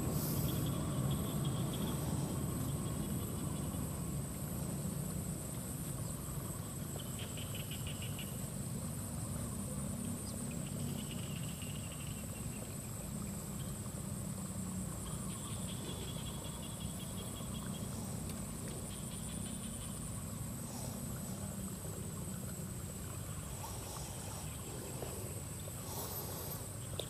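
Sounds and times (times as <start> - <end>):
low steady rumble: 0.0 - 27.0
pulsed frog trills: 10.3 - 27.0.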